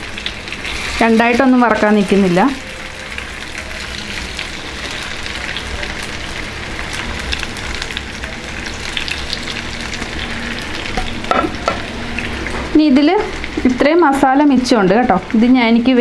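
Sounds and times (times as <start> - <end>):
chicken sizzling in hot oil: 0.0 - 16.0
crackling pops of frying: 3.4 - 10.2.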